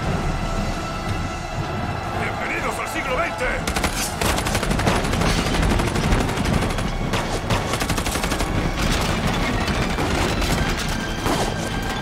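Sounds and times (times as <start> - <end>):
rapid continuous gunfire: 3.6 - 12.0.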